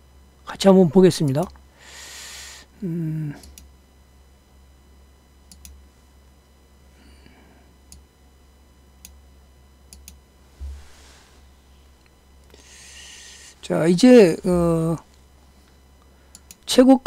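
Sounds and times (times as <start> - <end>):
low steady hum: 0.0 - 17.0
computer mouse clicking: 5.5 - 5.8, 9.9 - 10.2, 16.3 - 16.6
short low thump: 10.6 - 10.9.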